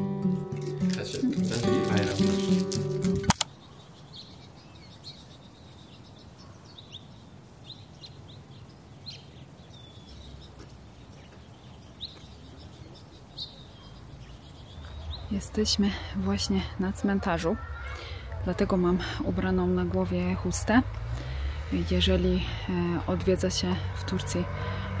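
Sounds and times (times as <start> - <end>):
small birds chirping: 0.3 - 25.0
sharp click: 3.0 - 3.5.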